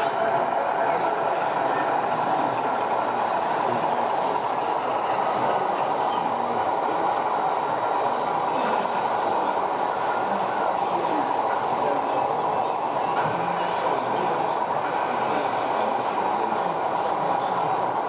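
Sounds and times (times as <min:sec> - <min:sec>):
model train running on track: 0:00.0 - 0:18.0
steady background din: 0:00.0 - 0:18.0.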